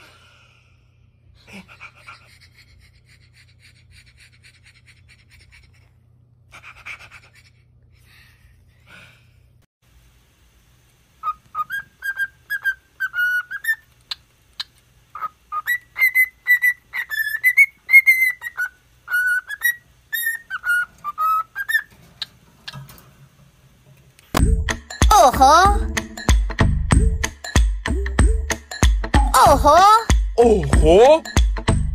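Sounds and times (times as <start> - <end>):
cockatiel whistling a tune: 11.2 - 13.8, 15.2 - 21.9.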